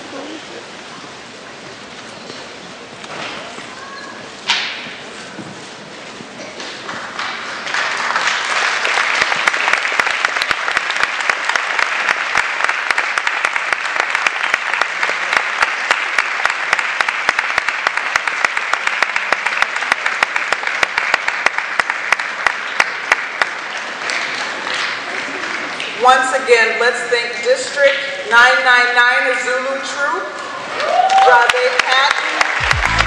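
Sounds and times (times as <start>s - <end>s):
audience applauding: 6.8s - 26.0s, 30.7s - 33.0s.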